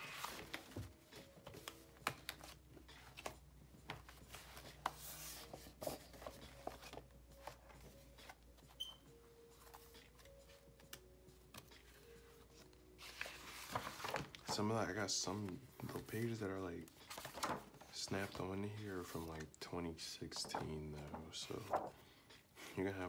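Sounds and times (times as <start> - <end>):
paper pages rustling: 0.0 - 8.7, 9.5 - 19.6, 20.3 - 22.0.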